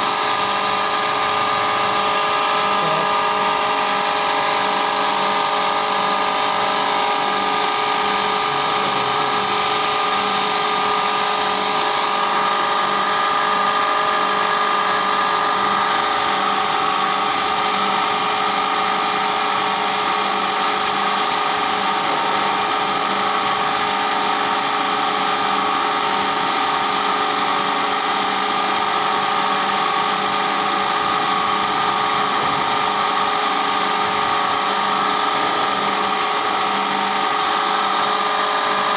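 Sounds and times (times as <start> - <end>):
milling machine whining: 0.0 - 38.9.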